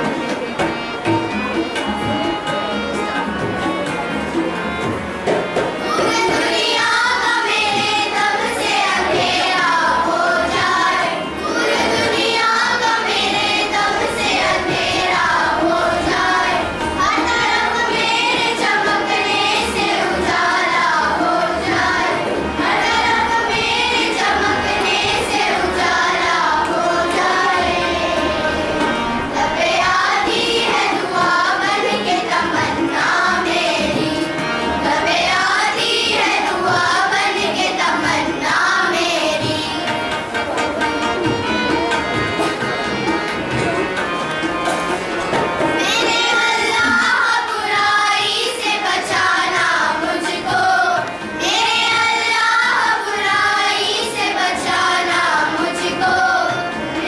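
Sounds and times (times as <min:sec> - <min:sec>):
girls choir singing: 0:00.0 - 0:57.0.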